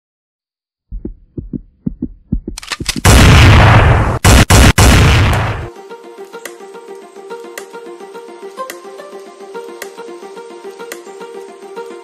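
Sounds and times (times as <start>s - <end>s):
low thumps: 0.9s - 4.2s
loud boom with deep rumble: 3.1s - 5.7s
plucked-string music: 5.7s - 12.0s.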